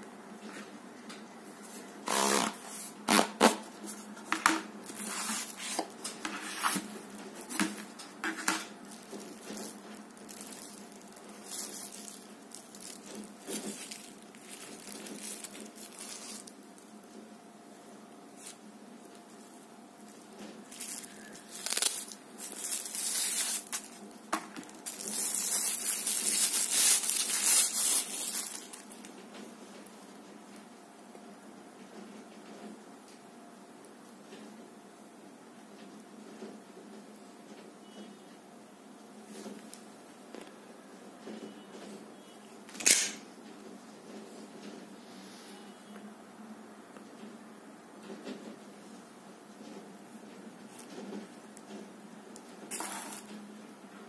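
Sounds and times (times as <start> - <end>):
cardboard and plastic rustling: 1.6 - 17.3, 18.4 - 30.2, 49.5 - 53.5
plastic wrapping crinkling: 2.1 - 17.3, 18.3 - 29.9, 50.6 - 51.8, 52.4 - 53.4.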